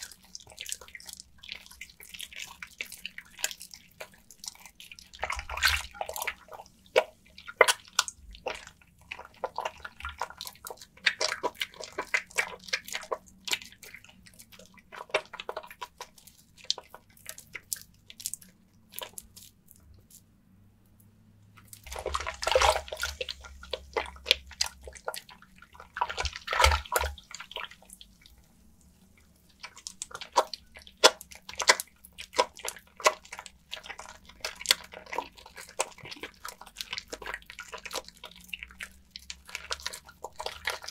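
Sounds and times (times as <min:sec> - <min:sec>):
wet soap squelching: 0:00.0 - 0:40.9
water splashing: 0:21.8 - 0:28.2.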